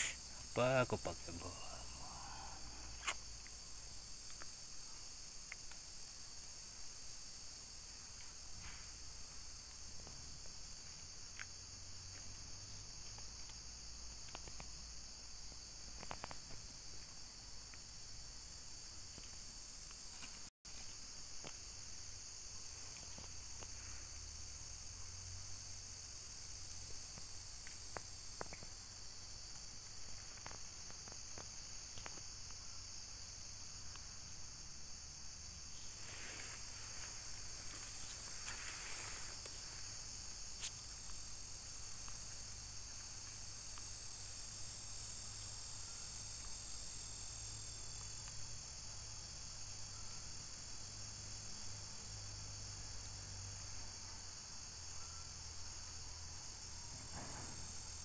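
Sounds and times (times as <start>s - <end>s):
high-pitched insect chorus: 0.0s - 58.0s
rustling: 35.8s - 41.2s.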